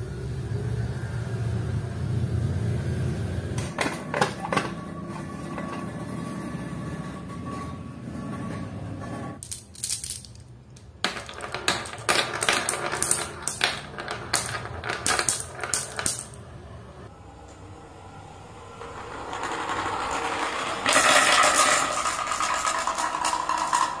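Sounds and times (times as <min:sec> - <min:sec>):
marbles clacking on plastic track: 0:09.4 - 0:16.4, 0:18.8 - 0:24.0
marbles rolling down wooden track: 0:09.4 - 0:16.4, 0:18.7 - 0:24.0.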